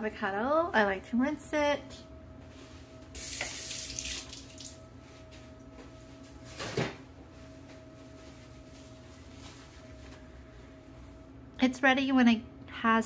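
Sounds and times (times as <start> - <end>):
kitchen tap running: 3.2 - 4.8.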